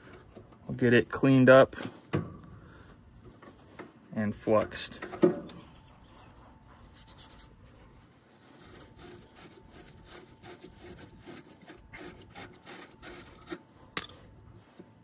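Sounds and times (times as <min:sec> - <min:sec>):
scratchy scrubbing of copper pipe: 0:06.0 - 0:13.9.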